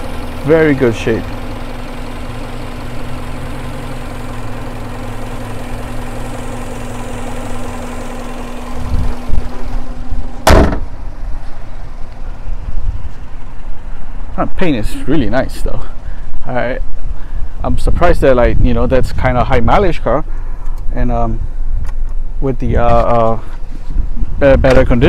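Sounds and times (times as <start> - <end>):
car engine idling: 0.0 - 17.6
car hood slamming shut: 10.4 - 11.0.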